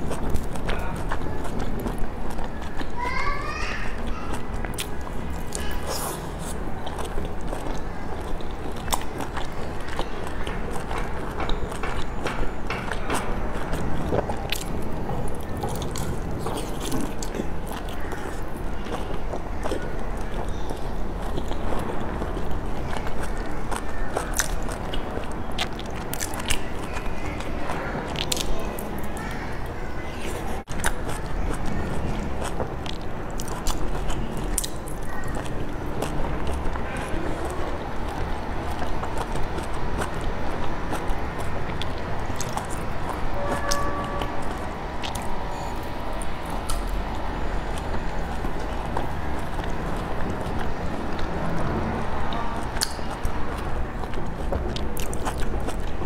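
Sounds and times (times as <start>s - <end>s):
wet chewing sounds: 0.0s - 56.0s
wet mouth clicks: 47.7s - 56.0s.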